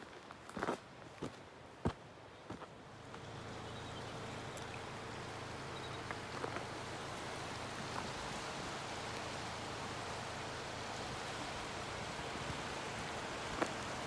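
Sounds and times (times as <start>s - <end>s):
river rushing: 2.7s - 14.0s
faint ticks: 4.5s - 4.8s.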